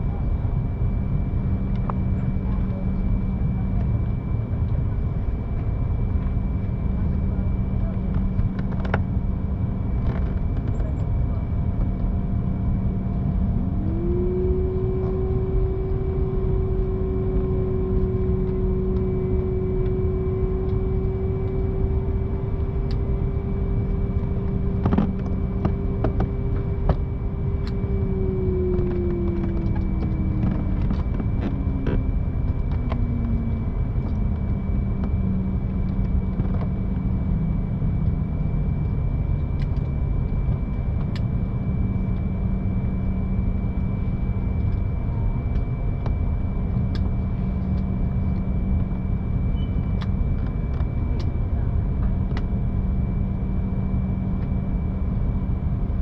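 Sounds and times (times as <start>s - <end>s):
airliner cabin rumble: 0.0s - 56.0s
low hum: 0.0s - 56.0s
humming tone sliding in pitch: 12.4s - 56.0s.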